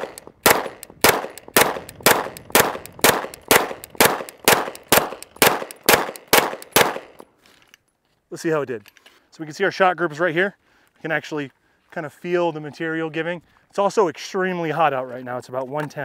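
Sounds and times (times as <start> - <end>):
rapid gunfire: 0.0 - 7.2.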